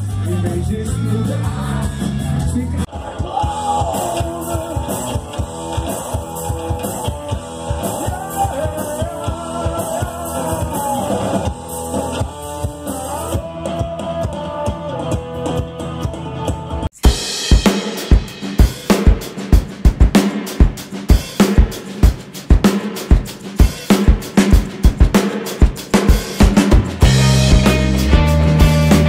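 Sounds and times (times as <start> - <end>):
drum kit beat: 0.0 - 29.0
live rock band: 0.0 - 29.0
person singing: 0.2 - 16.8.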